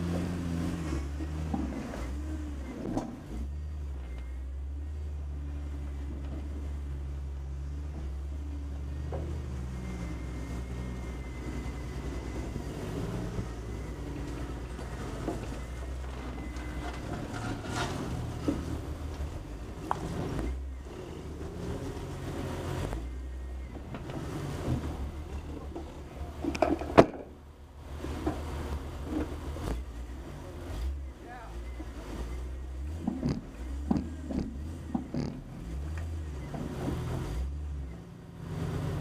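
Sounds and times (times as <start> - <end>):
vehicle knocks and clunks: 0.0 - 3.4, 23.6 - 30.0, 31.8 - 37.6
car engine running: 0.0 - 39.0.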